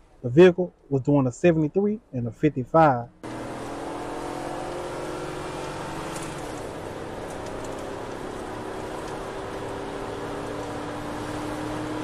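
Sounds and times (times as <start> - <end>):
car engine and road noise: 2.6 - 12.0.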